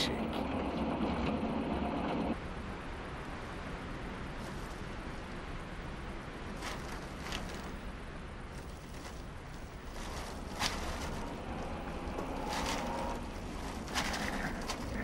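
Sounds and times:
faint rustles: 0:04.2 - 0:15.0
jeep engine on dirt road: 0:09.3 - 0:15.0.

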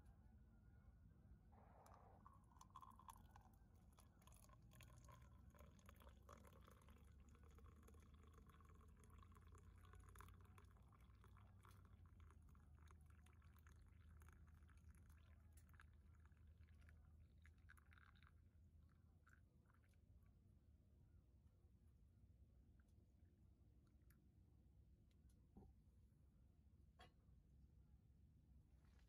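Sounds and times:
liquid pouring into cup: 0:01.8 - 0:20.1.

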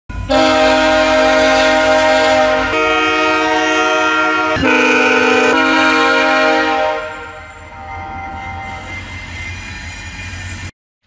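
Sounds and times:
locomotive air horn chords: 0:00.3 - 0:09.0.

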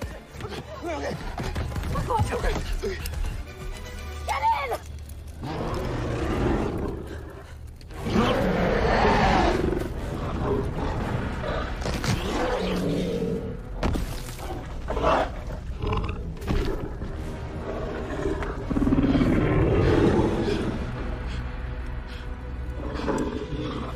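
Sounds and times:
orchestral music: 0:00.0 - 0:06.3, 0:16.8 - 0:23.9
large dinosaur roaring and growling: 0:05.4 - 0:13.6, 0:14.9 - 0:21.4, 0:22.8 - 0:23.9.

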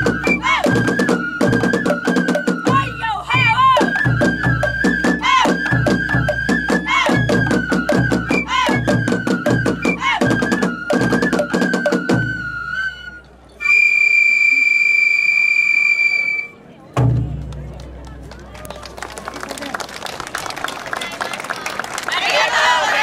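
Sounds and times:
bamboo flute melody: 0:00.0 - 0:16.6
taiko drum strokes: 0:17.0 - 0:18.0.

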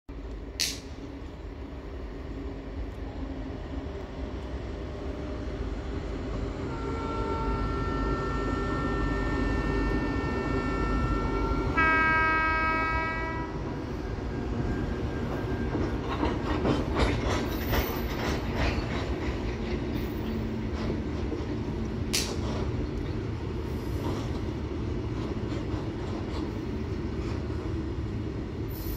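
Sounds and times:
locomotive horn blast: 0:06.6 - 0:13.7
wheels clacking over rail joints: 0:15.2 - 0:27.8.

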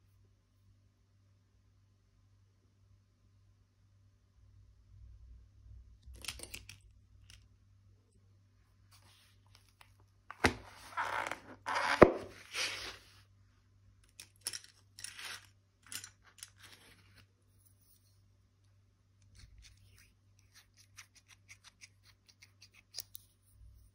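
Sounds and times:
metal pens handled on table: 0:06.0 - 0:07.4, 0:09.6 - 0:13.0, 0:14.0 - 0:17.2.

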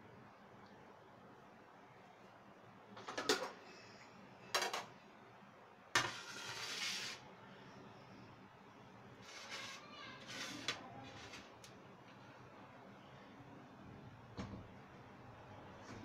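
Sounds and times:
rustling noise: 0:09.2 - 0:11.6.

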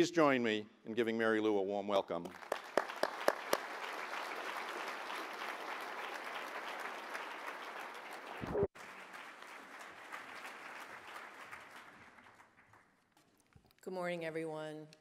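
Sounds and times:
audience applauding: 0:02.3 - 0:13.1.

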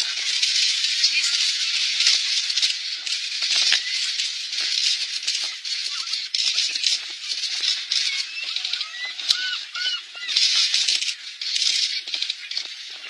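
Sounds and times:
dense crackling hiss: 0:00.0 - 0:13.0
gull calls: 0:07.6 - 0:11.2.

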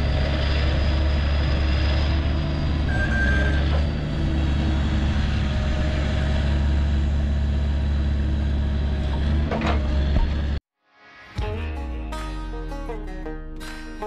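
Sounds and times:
diesel engine running: 0:00.0 - 0:10.6.

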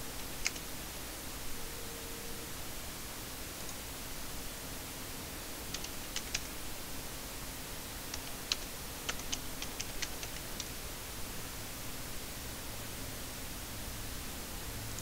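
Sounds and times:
steady hiss: 0:00.0 - 0:15.0
computer keyboard typing: 0:00.2 - 0:00.7, 0:05.7 - 0:06.5, 0:08.1 - 0:10.8.

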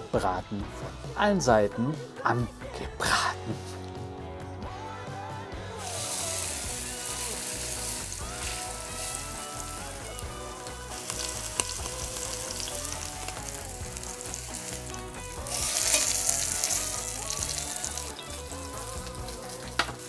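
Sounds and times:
meat sizzling in hot oil: 0:05.8 - 0:20.0.

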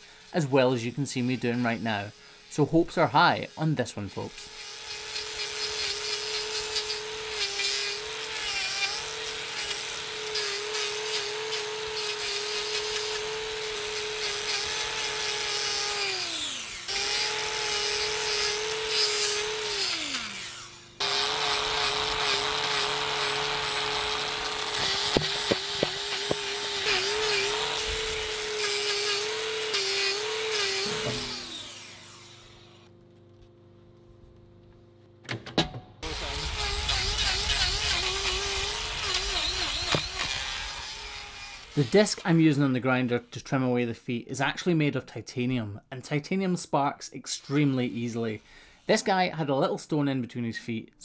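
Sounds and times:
angle grinder grinding: 0:00.0 - 0:32.9, 0:36.0 - 0:42.8, 0:47.3 - 0:49.0.

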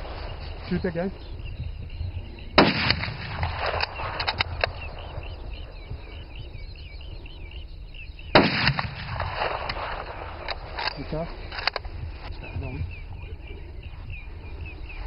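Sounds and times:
birds chirping faintly: 0:00.0 - 0:15.0
rifle shots: 0:02.6 - 0:05.4, 0:08.3 - 0:10.9.

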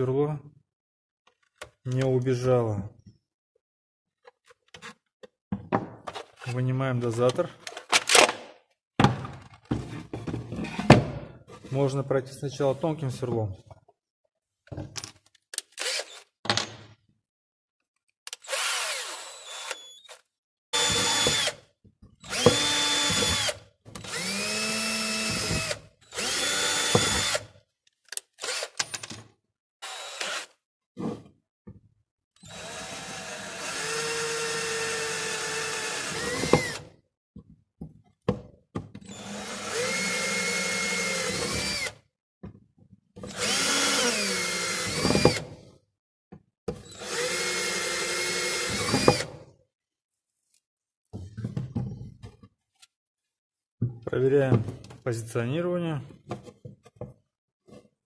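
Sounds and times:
electric drill boring through plastic: 0:15.7 - 0:16.3, 0:18.3 - 0:27.6, 0:28.3 - 0:28.8, 0:29.8 - 0:30.6, 0:32.4 - 0:37.0, 0:39.0 - 0:42.1, 0:43.2 - 0:45.7, 0:46.8 - 0:49.4.

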